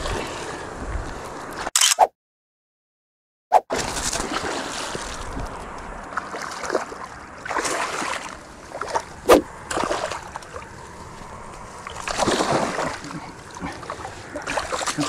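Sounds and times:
fish thrashing and splashing: 3.7s - 15.0s.

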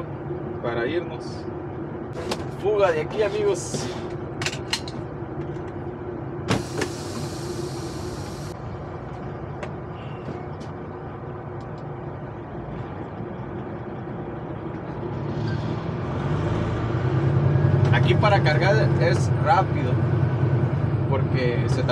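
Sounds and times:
diesel truck engine idling: 5.1s - 14.6s
air brake hiss: 6.5s - 8.6s.

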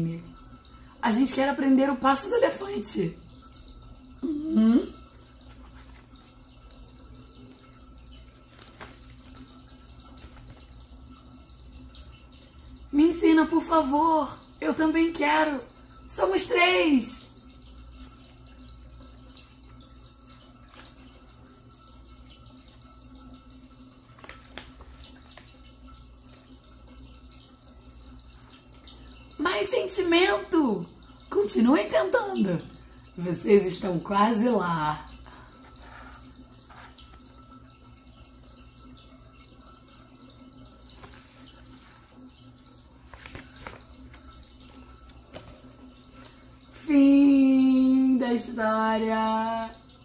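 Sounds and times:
low room hum: 0.0s - 50.0s
paper page turning: 8.3s - 9.4s, 24.0s - 25.5s, 43.0s - 46.3s.

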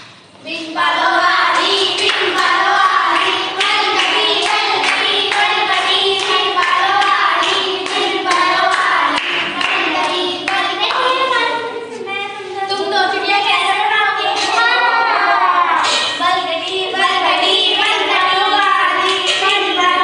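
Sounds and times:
girls singing together: 0.0s - 20.0s
hands clapping in rhythm: 1.5s - 11.2s, 18.4s - 20.0s.

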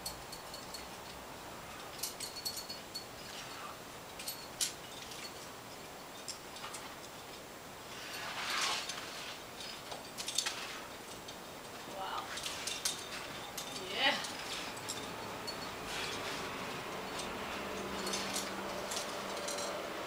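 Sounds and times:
climbing gear clinking: 0.0s - 20.0s
scraping rush: 7.9s - 9.7s.

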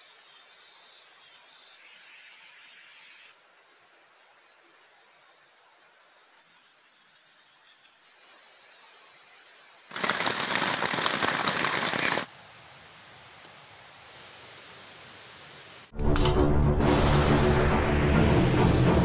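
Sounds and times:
insects trilling: 0.0s - 12.3s
loud crackling hiss: 9.6s - 12.3s.

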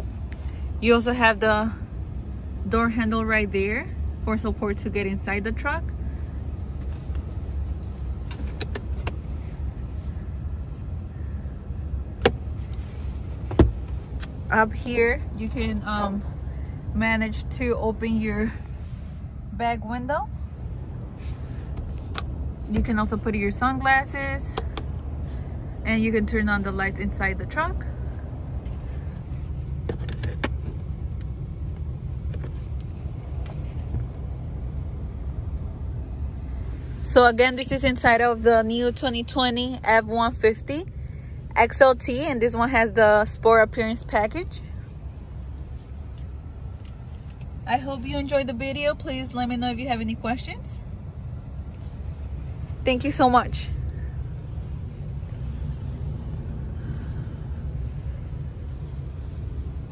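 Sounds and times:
low cab rumble: 0.0s - 59.9s
plastic sun visor clicks: 12.2s - 12.8s.

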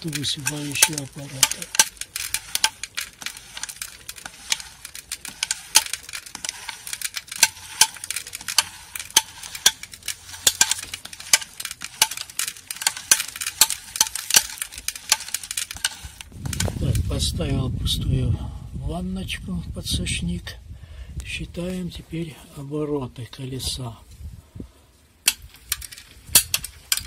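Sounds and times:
seed metering disc clicking: 0.0s - 17.0s
grainy seed rustle: 0.0s - 17.2s.

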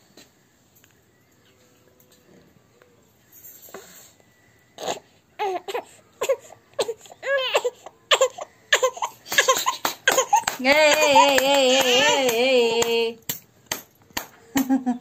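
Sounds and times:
infant crying: 4.8s - 12.3s.

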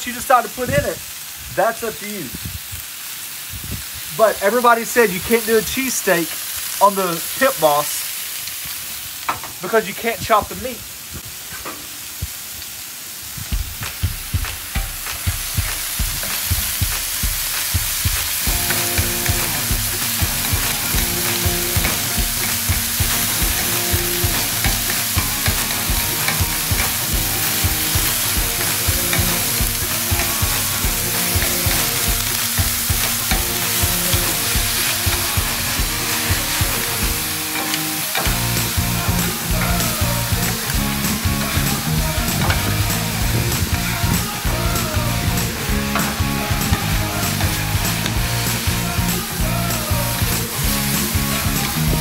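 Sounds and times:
meat sizzling on a griddle: 0.0s - 52.0s
spatulas tapping on griddle: 13.4s - 49.2s.

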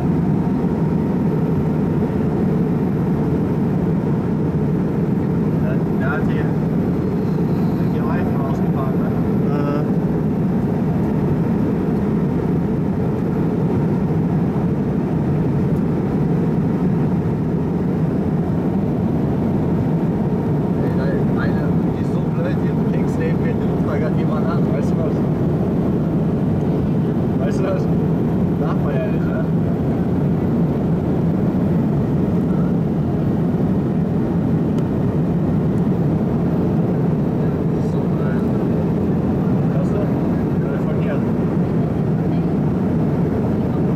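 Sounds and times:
airliner cabin engine rumble: 0.0s - 43.9s.

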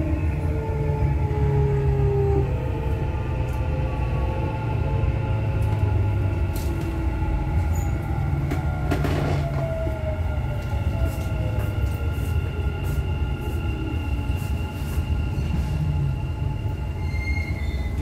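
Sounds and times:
train rumble and motor whine: 0.0s - 18.0s.

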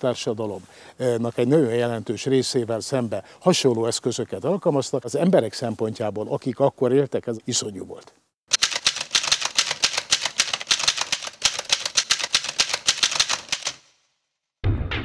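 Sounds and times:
typewriter keystrokes: 8.5s - 13.9s
music with low drum hit: 14.6s - 15.0s.

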